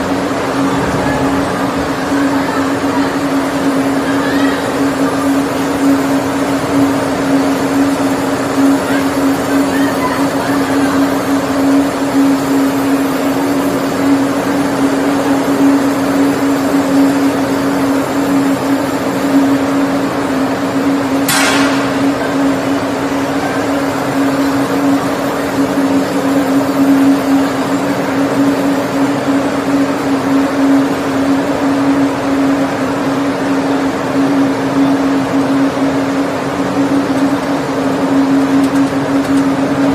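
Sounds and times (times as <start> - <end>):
fryer machinery humming: 0.0 - 39.9
sharp click: 21.3 - 22.6.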